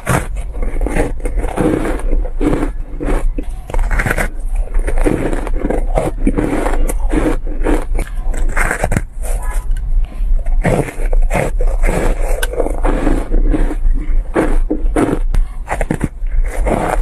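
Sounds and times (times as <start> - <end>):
shaved ice crunching: 0.0 - 9.6, 10.5 - 17.0.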